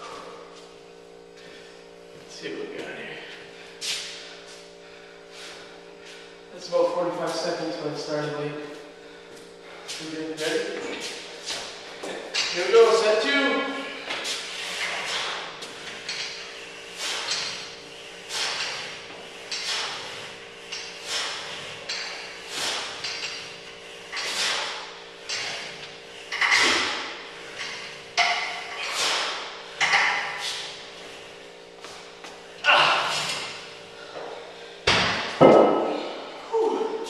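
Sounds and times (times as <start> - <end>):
man breathing hard: 1.3 - 2.0, 3.0 - 6.5, 8.8 - 10.0, 13.8 - 37.0
man grunting: 32.6 - 33.4, 35.8 - 37.0.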